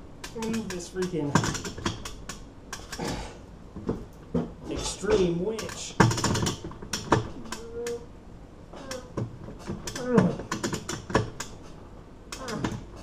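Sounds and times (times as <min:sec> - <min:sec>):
winch ratcheting clicks: 0:00.2 - 0:03.0.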